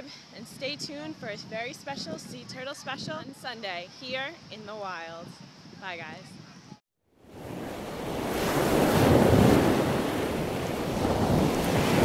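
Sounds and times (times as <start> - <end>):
ocean waves surging: 7.3 - 12.0.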